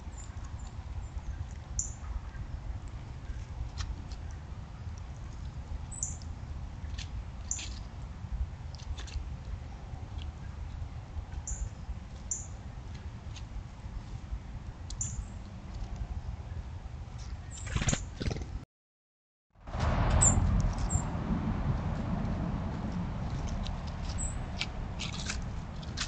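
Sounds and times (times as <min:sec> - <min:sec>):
low rumble: 0:19.6 - 0:26.0.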